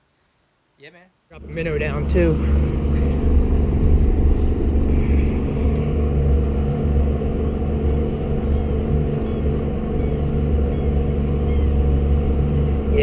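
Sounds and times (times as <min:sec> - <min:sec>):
outboard motor droning: 0:01.4 - 0:13.0.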